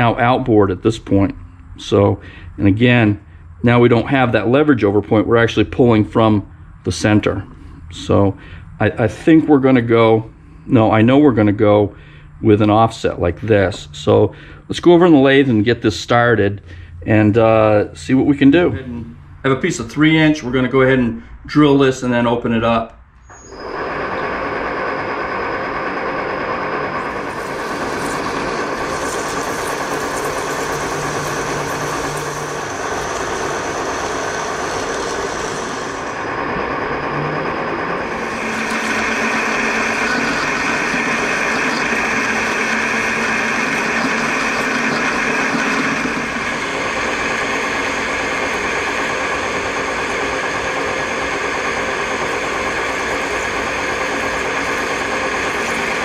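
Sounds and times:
drill cutting metal: 0:23.4 - 0:56.0
lathe motor hum: 0:23.5 - 0:56.0.

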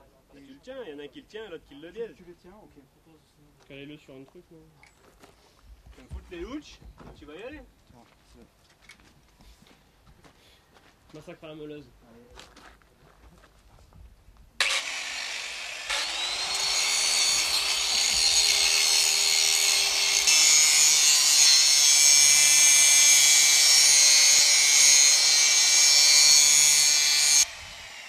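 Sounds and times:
angle grinder cutting metal: 0:14.6 - 0:28.0.

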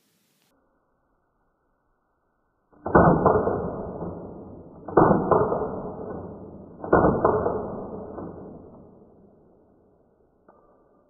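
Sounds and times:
long echo of gunshots: 0:02.8 - 0:09.9.

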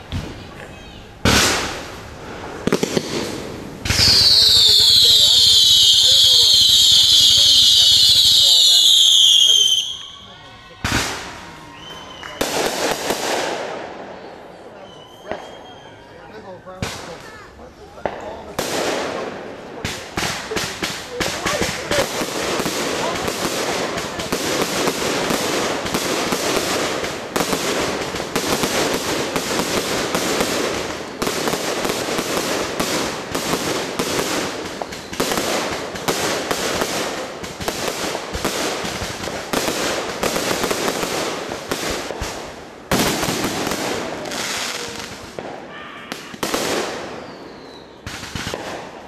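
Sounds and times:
firework barrage with crackle: 0:00.0 - 0:16.0, 0:16.7 - 0:49.0
loud firework bang: 0:01.2 - 0:04.7.

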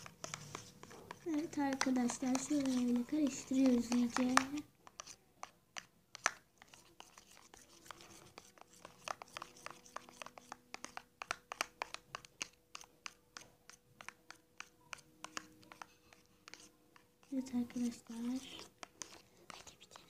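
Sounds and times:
stick scraping in plastic tub: 0:00.0 - 0:05.1.

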